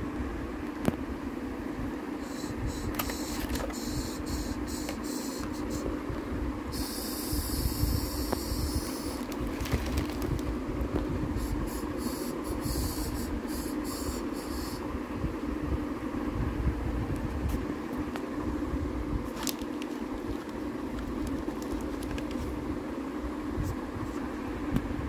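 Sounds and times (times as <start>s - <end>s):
foil and paper crinkling: 8.8s - 10.5s, 19.3s - 22.6s.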